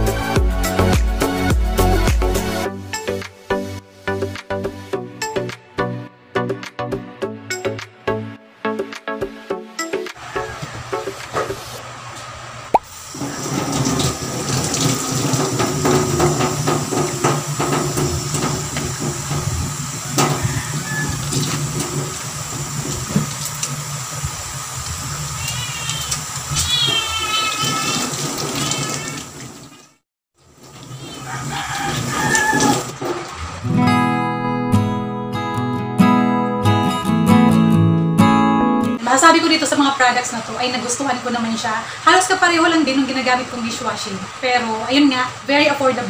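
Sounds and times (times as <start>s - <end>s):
faucet water splashing into sink: 12.7s - 33.3s.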